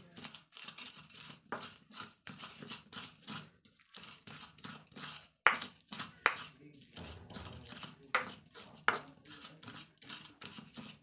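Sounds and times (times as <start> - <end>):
pestle grinding in mortar: 0.0 - 11.0
pestle knocking mortar: 4.6 - 11.0.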